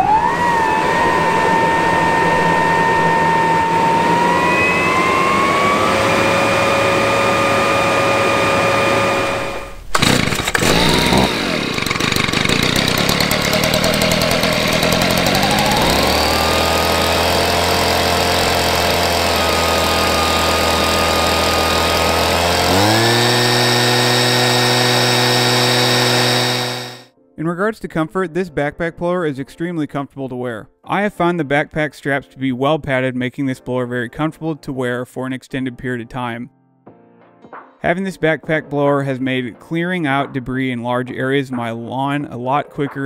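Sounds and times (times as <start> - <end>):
electric leaf blower whining: 0.0 - 27.1
gas leaf blower engine: 0.0 - 27.1.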